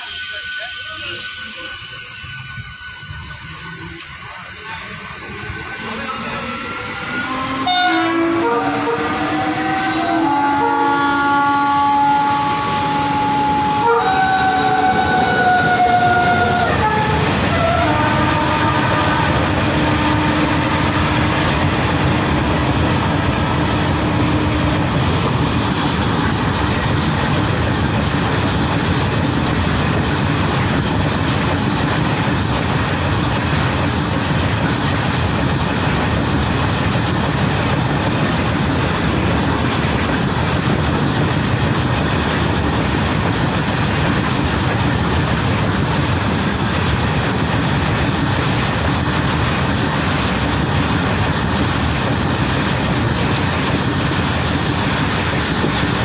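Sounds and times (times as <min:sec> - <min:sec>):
freight train rumble and wheel clatter: 0:00.0 - 0:56.0
locomotive horn chord: 0:07.2 - 0:21.4.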